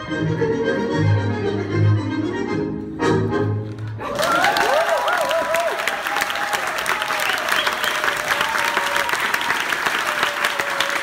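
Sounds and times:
audience clapping: 3.7s - 11.0s
voices cheering: 4.0s - 11.0s.

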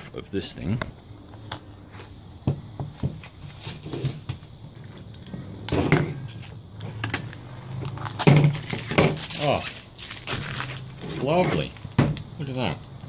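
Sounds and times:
tape peeling off plastic sheet: 7.8s - 12.2s.

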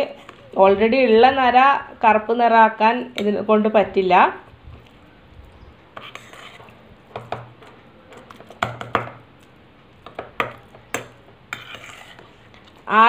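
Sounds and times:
spoon scraping metal bowl: 5.9s - 7.3s, 10.5s - 12.7s.

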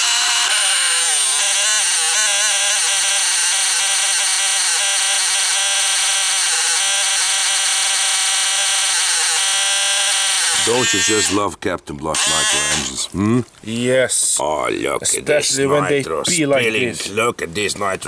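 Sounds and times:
electric fuel pump whining: 0.0s - 11.4s, 12.2s - 13.0s.

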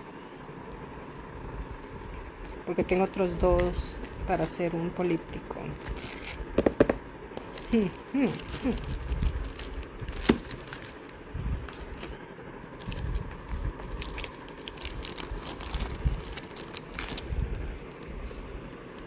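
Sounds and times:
plastic sleeves crinkling: 2.4s - 6.4s, 7.4s - 18.1s.

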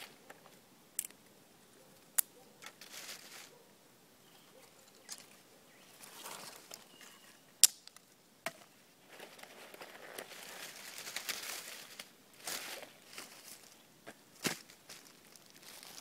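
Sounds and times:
twigs and leaves rustling: 1.8s - 16.0s
sharp twig crack: 7.6s - 8.1s.

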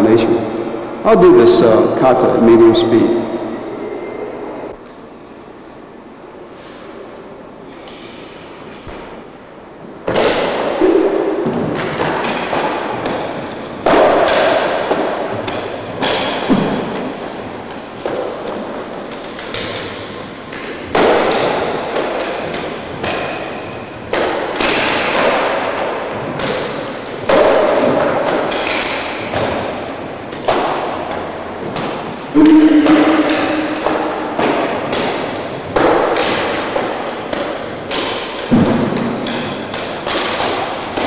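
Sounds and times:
nunchaku thuds echoing: 8.8s - 41.0s.

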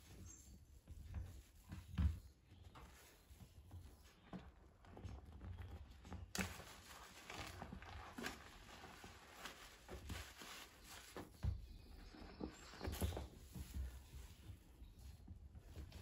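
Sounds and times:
sponges squelching in suds: 6.3s - 11.4s.

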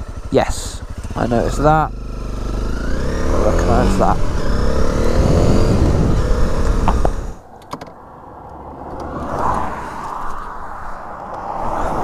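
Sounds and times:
motorcycle engine: 0.0s - 7.5s
road ambience: 0.0s - 12.0s.

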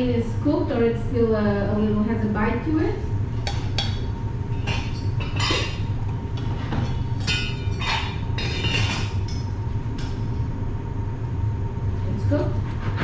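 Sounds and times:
metal kitchenware clinking: 4.6s - 5.8s, 6.8s - 9.4s.

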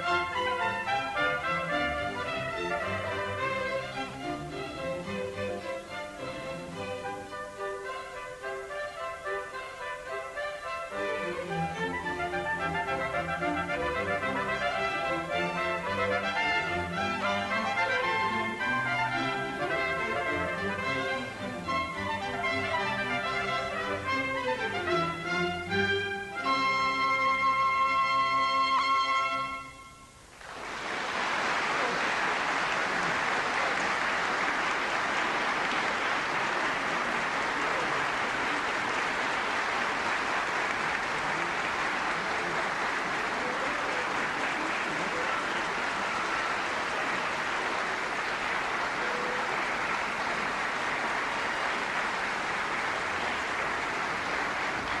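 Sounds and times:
orchestra and trumpets chord: 0.0s - 30.2s
audience applause: 11.3s - 24.6s, 30.3s - 55.0s.

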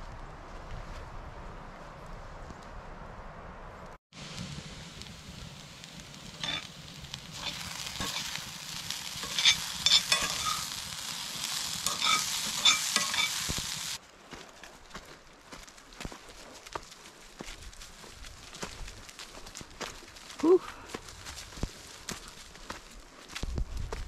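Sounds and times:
onions sizzling in a skillet: 4.2s - 14.0s
spatula scraping a pan: 6.4s - 14.0s.

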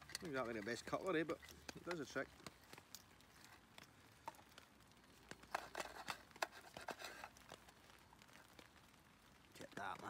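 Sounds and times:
cutlery scraping metal tin: 5.5s - 7.3s.

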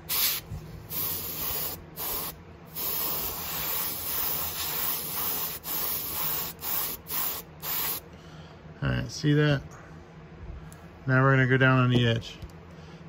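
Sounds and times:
airbrush spraying hiss: 0.0s - 8.0s.

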